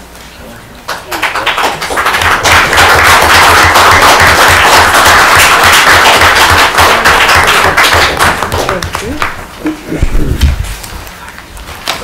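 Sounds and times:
crowd applauding: 0.9 - 9.4.

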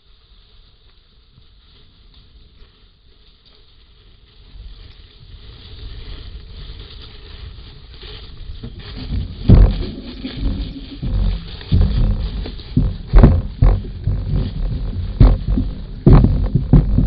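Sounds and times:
elephants low rumbling: 4.5 - 17.0
loud low thud: 9.1 - 17.0.

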